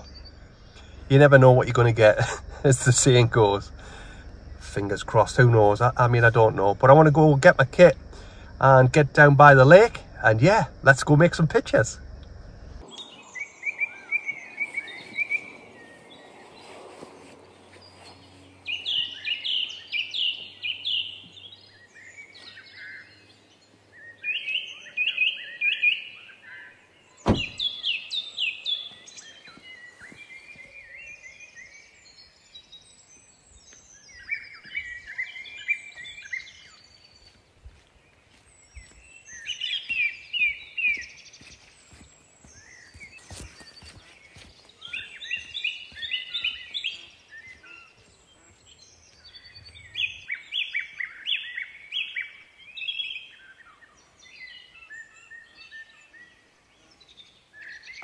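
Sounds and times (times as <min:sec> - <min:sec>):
songbirds trilling: 0:00.0 - 0:58.0
car boot slamming shut: 0:27.2 - 0:27.8.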